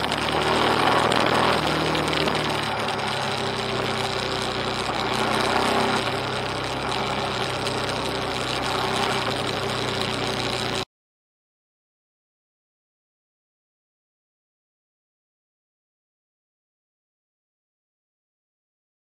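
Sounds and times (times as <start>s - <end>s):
wind noise: 0.0s - 10.8s
motorcycle engine running: 0.0s - 10.9s.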